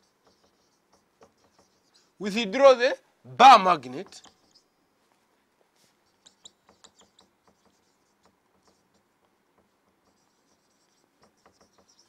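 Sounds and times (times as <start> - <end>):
marker pen writing on whiteboard: 0.0 - 2.2, 3.9 - 4.7, 5.8 - 12.0.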